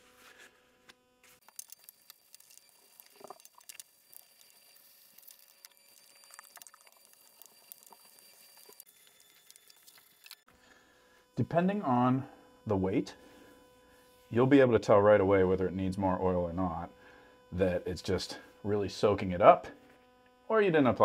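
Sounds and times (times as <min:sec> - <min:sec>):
small clicks: 0:01.4 - 0:10.5.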